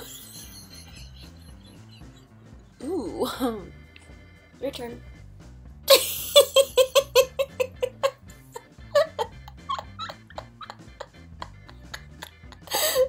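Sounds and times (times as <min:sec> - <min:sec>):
woman laughing: 0:05.9 - 0:13.0.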